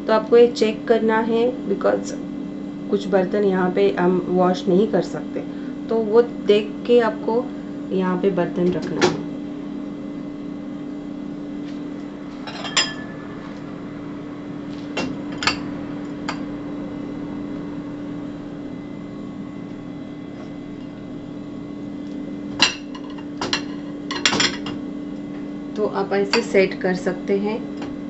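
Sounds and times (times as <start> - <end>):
steady low hum: 0.0 - 28.0
dishes clinking in a wire rack: 12.4 - 13.2, 22.6 - 24.8.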